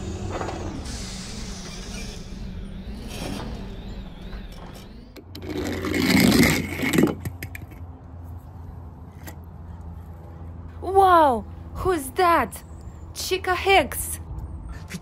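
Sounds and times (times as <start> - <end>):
toy car scraping down plastic slide: 4.7 - 7.4.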